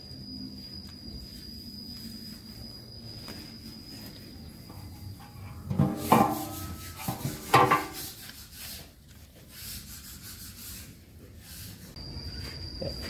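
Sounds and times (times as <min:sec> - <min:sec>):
metal clanking: 0:05.2 - 0:08.0
steel pieces scraping: 0:05.2 - 0:08.5.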